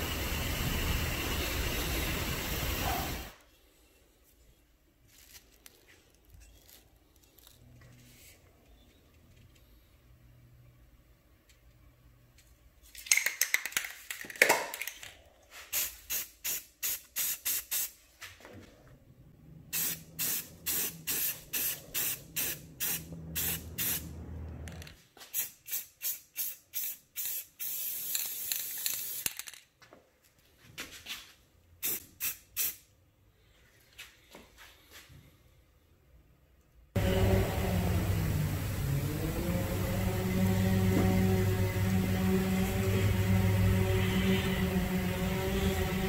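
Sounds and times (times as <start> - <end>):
aerosol spray paint hissing: 15.7 - 18.0, 19.8 - 24.1, 25.3 - 29.2, 31.8 - 32.8
low hum: 37.0 - 46.0.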